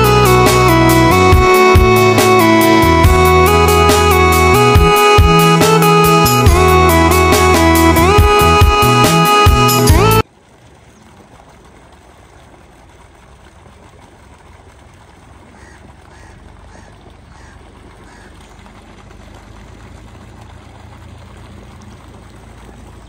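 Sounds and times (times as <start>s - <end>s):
water pouring into pond: 10.2s - 23.0s
animal calling faintly: 15.5s - 18.6s.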